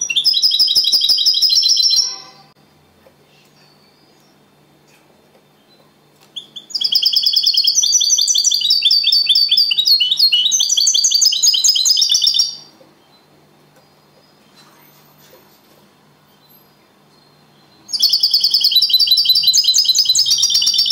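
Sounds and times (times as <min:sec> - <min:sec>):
goldfinch twittering song: 0:05.6 - 0:14.6, 0:16.4 - 0:20.9.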